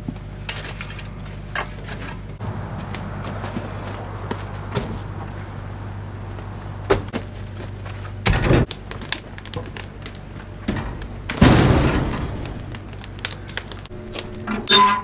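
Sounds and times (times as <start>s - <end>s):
steady low hum: 0.0s - 14.8s
logs thudding into firebox: 8.2s - 14.6s.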